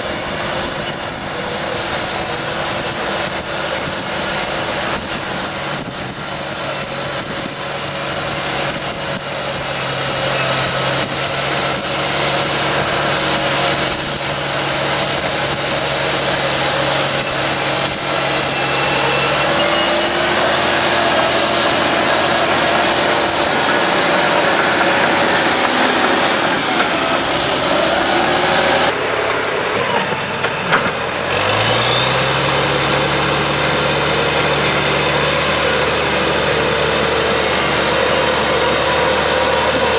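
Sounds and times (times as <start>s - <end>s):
bulldozer diesel engine under load: 0.0s - 39.9s
high engine whine: 0.0s - 39.9s.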